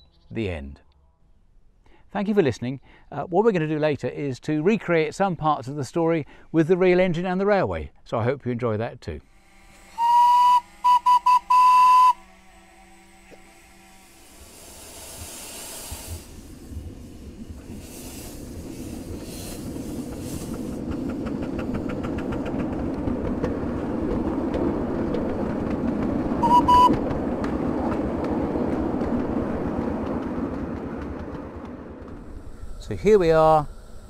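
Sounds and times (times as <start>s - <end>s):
miniature steam locomotive running: 9.3s - 34.0s
steam whistle toot: 9.4s - 14.5s, 26.4s - 27.0s.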